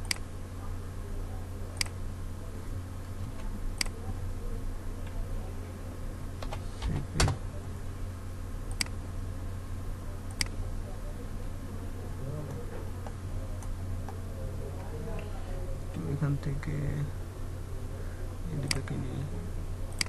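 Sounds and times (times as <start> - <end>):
computer mouse clicks: 0.0 - 0.2, 1.8 - 2.0, 3.4 - 4.0, 8.7 - 9.0, 10.3 - 10.6
steady low hum: 0.0 - 20.0.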